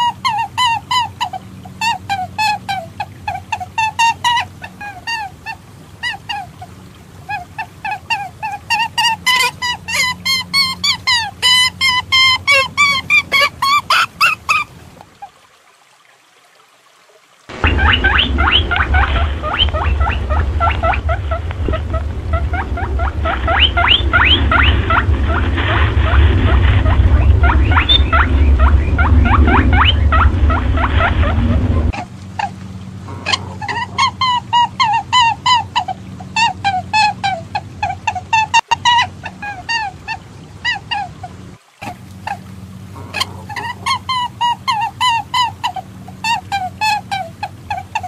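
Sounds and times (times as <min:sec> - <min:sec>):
low rumble: 0:17.5 - 0:34.6.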